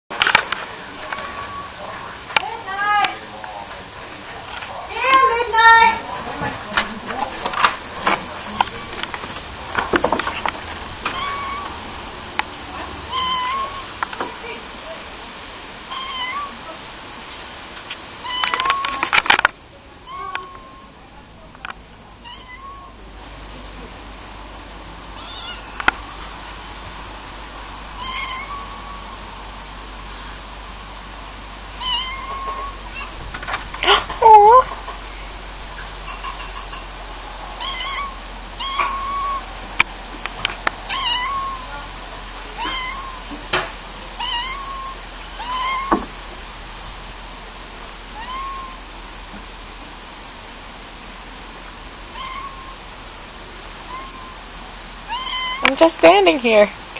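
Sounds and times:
cat meowing: 0:01.1 - 0:02.0, 0:11.0 - 0:11.8, 0:12.7 - 0:14.0, 0:15.9 - 0:16.7, 0:18.2 - 0:19.0, 0:20.0 - 0:21.0, 0:22.2 - 0:23.0, 0:25.2 - 0:25.8, 0:28.0 - 0:29.2, 0:31.7 - 0:33.2, 0:37.6 - 0:39.6, 0:40.9 - 0:41.9, 0:42.5 - 0:43.4, 0:44.2 - 0:46.1, 0:48.1 - 0:48.8, 0:52.1 - 0:52.8, 0:53.8 - 0:54.4, 0:55.1 - 0:55.7
loud clicks and rustles: 0:06.3 - 0:12.9, 0:17.7 - 0:19.6.

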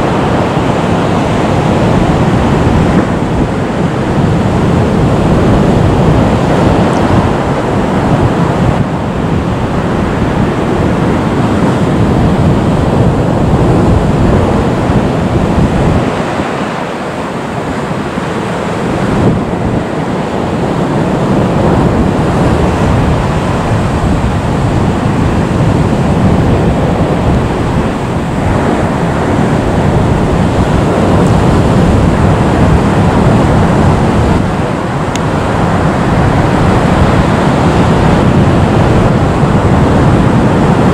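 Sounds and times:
wind on microphone: 0:00.0 - 0:40.9.

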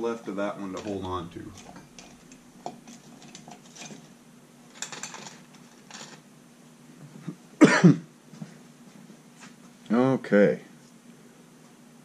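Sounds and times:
small objects clicking and rustling: 0:00.7 - 0:04.1, 0:04.7 - 0:06.2
man coughing: 0:07.6 - 0:08.1.

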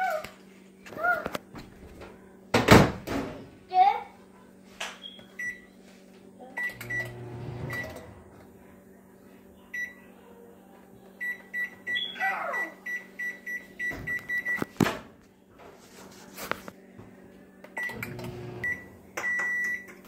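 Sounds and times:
microwave keypad beeps: 0:05.0 - 0:05.7, 0:06.6 - 0:08.1, 0:11.2 - 0:14.7, 0:17.8 - 0:19.9.

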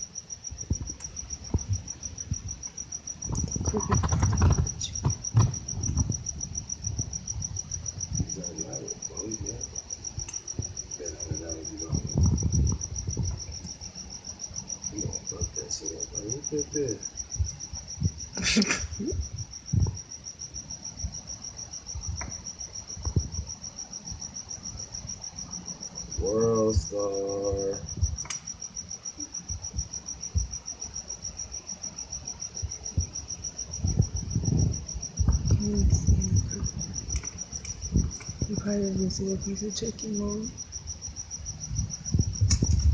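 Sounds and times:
cricket chirping: 0:00.0 - 0:42.9
handling knocks and thumps: 0:03.3 - 0:06.2.

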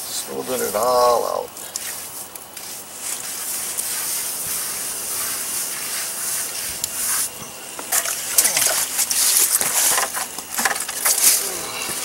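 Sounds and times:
wet sponge rubbing on cement: 0:01.7 - 0:07.4.

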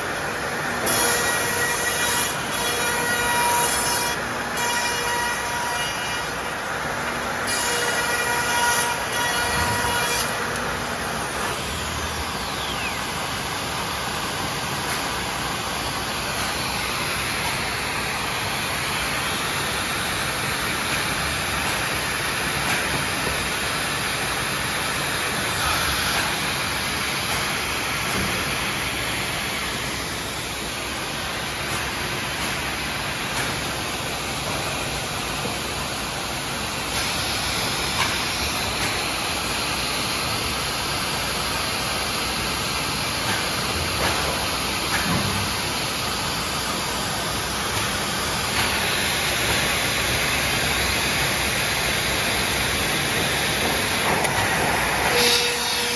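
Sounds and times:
cnc router running: 0:00.0 - 0:55.9.

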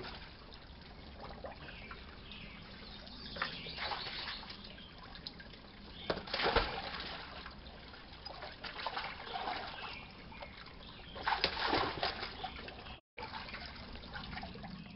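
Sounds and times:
water trickling: 0:00.0 - 0:14.9
dog splashing in water: 0:06.1 - 0:07.5, 0:11.1 - 0:14.5.

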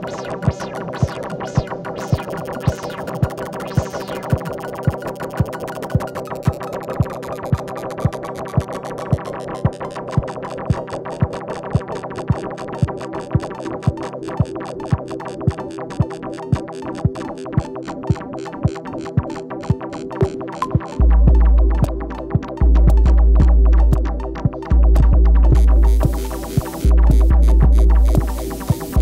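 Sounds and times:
held synthesizer tones: 0:00.0 - 0:09.8
electronic ticks: 0:00.0 - 0:29.0
heavy bass: 0:21.0 - 0:29.0
kick drum beat: 0:21.1 - 0:29.0.

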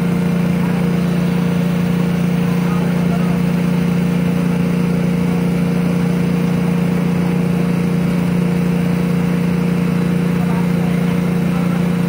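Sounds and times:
engine running with low hum: 0:00.0 - 0:12.0.

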